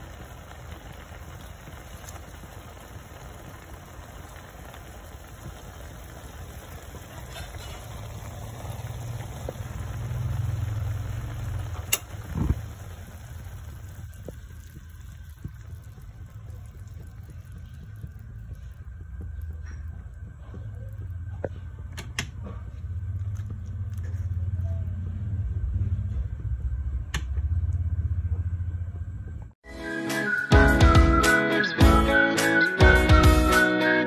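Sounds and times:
sauce bubbling in a pot: 0.0s - 25.7s
low rumble: 0.0s - 29.6s.

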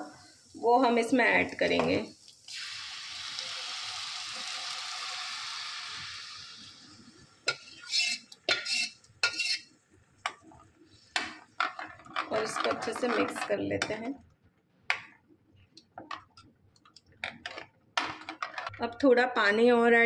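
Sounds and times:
batter sizzling in hot oil: 0.0s - 9.7s
ladle scraping and knocking pan: 11.2s - 14.0s.

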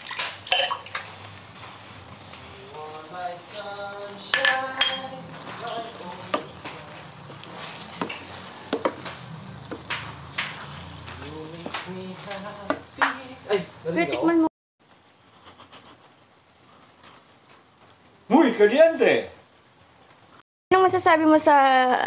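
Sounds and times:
food sizzling: 0.0s - 15.4s, 16.0s - 22.0s
spatula scraping frying pan: 3.2s - 13.9s
spatula knocking against pan: 8.0s - 10.6s.

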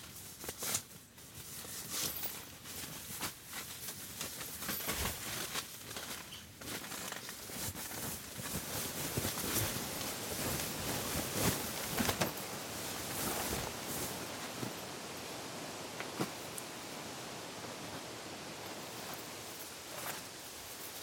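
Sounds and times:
rustling and crinkling: 0.0s - 21.0s.

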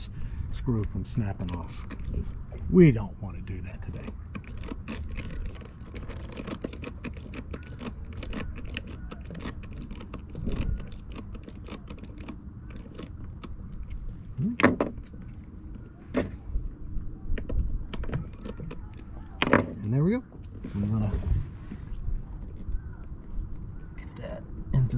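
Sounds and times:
brief vocal noise: 14.3s - 14.7s.

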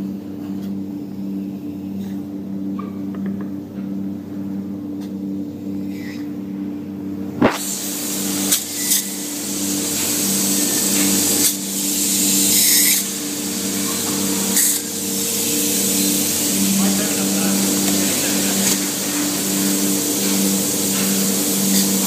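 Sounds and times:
steady machine hum: 0.0s - 22.0s
spray foam gun hissing: 7.4s - 22.0s.

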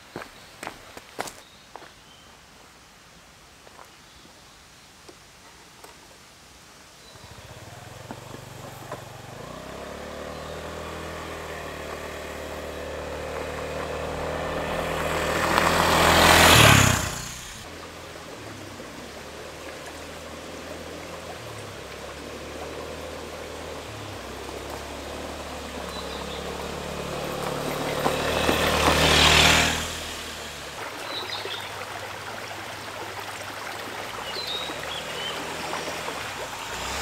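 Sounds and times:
scooter engine passing: 7.2s - 37.0s
tyre noise on gravel: 10.6s - 17.7s, 23.9s - 31.2s.

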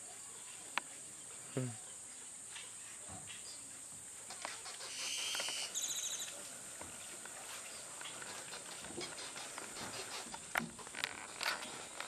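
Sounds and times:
high insect drone: 3.7s - 7.4s
bird call with rattling trill: 4.3s - 6.3s.

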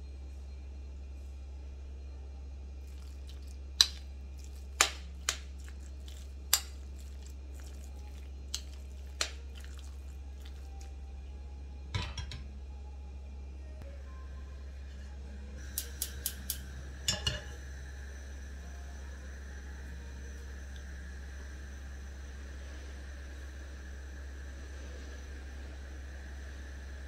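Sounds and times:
bowl clattering on stove grate: 12.0s - 12.5s, 17.1s - 17.5s.

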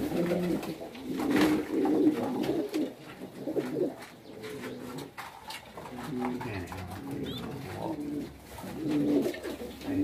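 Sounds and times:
pigeons cooing: 0.0s - 10.0s.

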